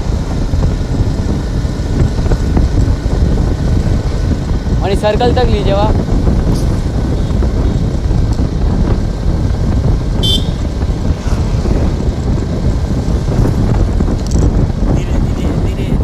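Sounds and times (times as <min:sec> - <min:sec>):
motorcycle engine rumble: 0:00.0 - 0:16.0
wind on microphone: 0:00.0 - 0:16.0
horn toot: 0:10.2 - 0:10.8.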